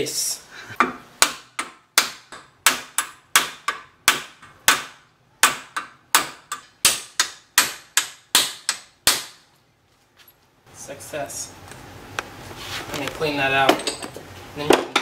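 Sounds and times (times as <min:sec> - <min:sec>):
hammer striking wooden block: 0:00.8 - 0:09.4.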